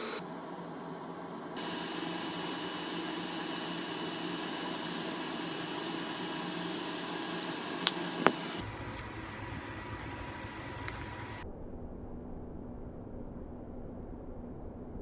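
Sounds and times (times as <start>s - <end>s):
electric fan whirring: 0.0s - 11.4s.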